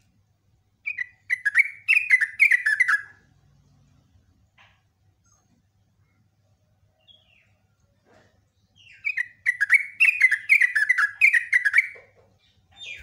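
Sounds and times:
bird singing chattering phrase: 8.8 - 13.0.

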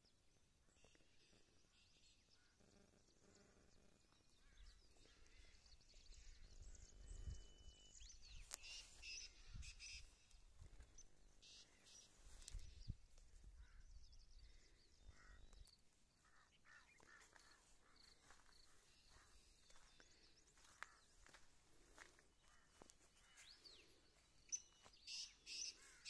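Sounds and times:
faint bird chirps: 0.0 - 26.0.

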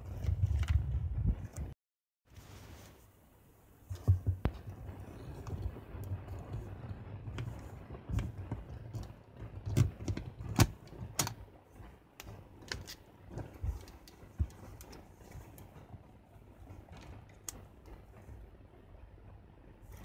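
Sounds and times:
soft rubbing: 2.3 - 3.3.

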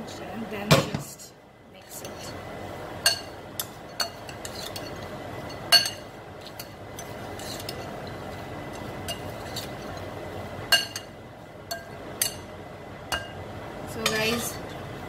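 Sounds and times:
metal ladle clinking glass bowl: 5.6 - 6.0, 10.7 - 11.1.

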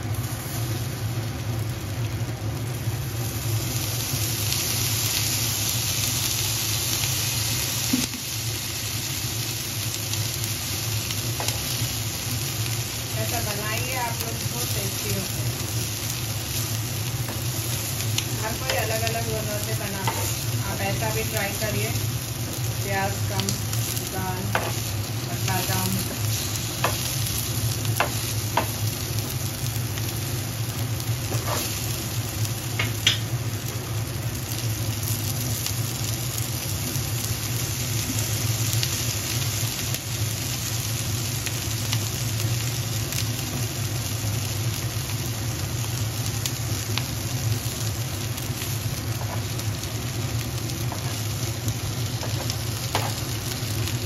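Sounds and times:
food sizzling in oil: 0.0 - 54.0
steady low hum: 7.5 - 38.9.

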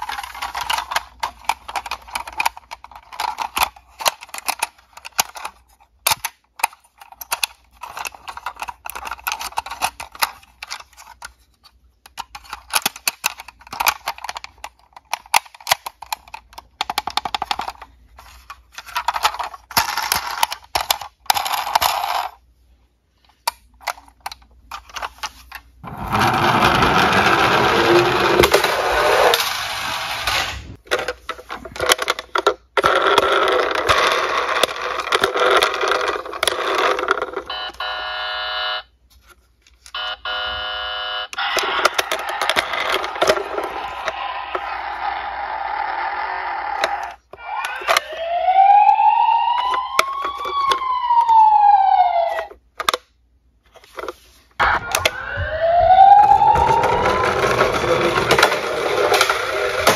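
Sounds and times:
toy wheels rolling down board: 0.0 - 11.2, 23.8 - 38.6, 41.4 - 53.0, 53.9 - 59.9
toy cars clattering: 0.0 - 22.4, 23.2 - 38.4, 41.4 - 48.9, 56.4 - 59.9.

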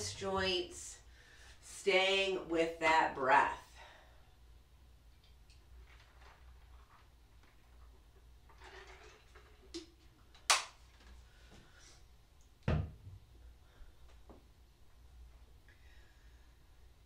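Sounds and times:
bottle thud on floor: 12.7 - 13.2.

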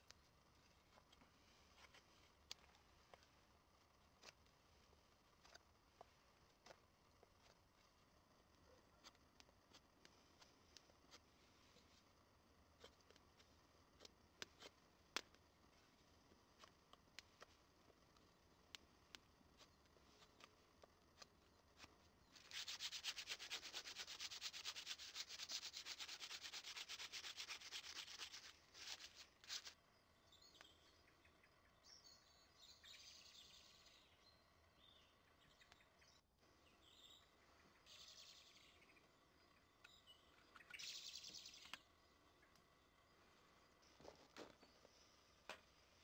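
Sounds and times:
hand rubbing wood: 21.2 - 29.8
bird chirps: 30.1 - 42.6.

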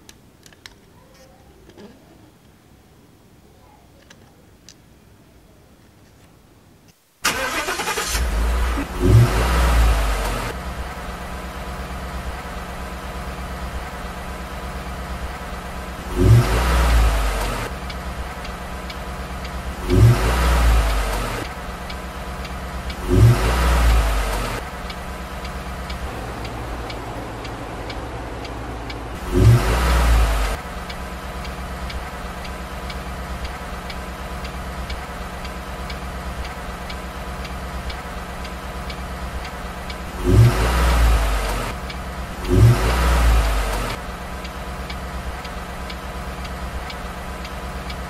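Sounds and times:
steady hum: 10.0 - 48.0
faint regular ticking: 10.2 - 48.0.

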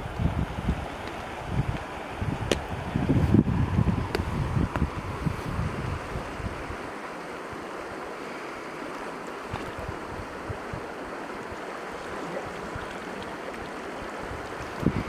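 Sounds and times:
wind bumps on microphone: 0.0 - 6.8, 14.2 - 15.0
shallow stream flowing: 0.0 - 15.0.

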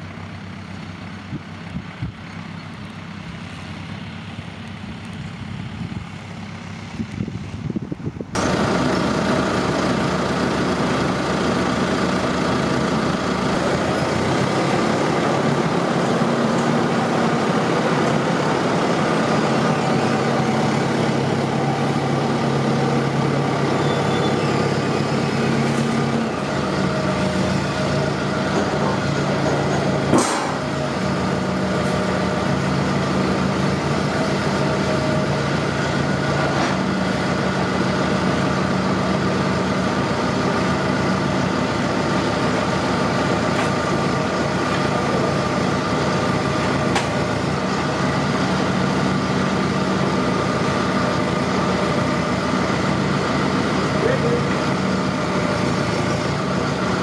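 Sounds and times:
tractor engine running: 0.0 - 57.0
sharp knock: 30.1 - 30.6.

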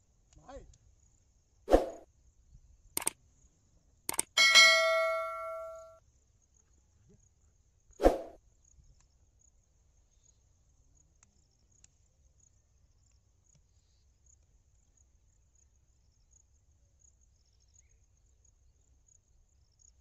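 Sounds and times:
quick click: 4.1 - 4.4
bell ding: 4.3 - 5.9.

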